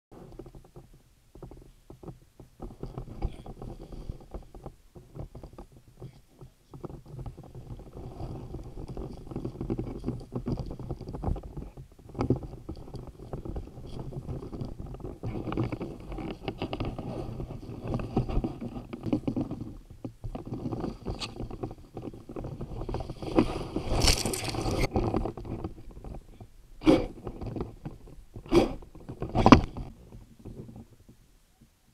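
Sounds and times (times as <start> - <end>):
camera rubbing and knocking: 0.1 - 31.2
bright rustle: 6.6 - 27.1.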